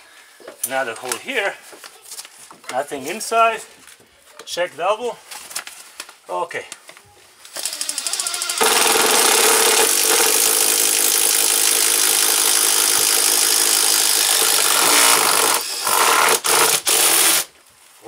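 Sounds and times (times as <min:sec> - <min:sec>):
cordless drill boring through wood: 0:07.6 - 0:17.5.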